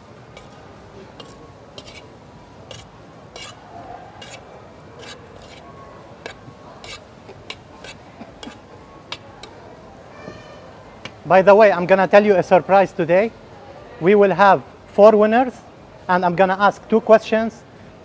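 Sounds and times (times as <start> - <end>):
spoon clicking and scraping bowl: 0.4 - 2.1, 2.7 - 3.6, 4.2 - 4.4, 5.0 - 5.6, 6.2 - 9.6.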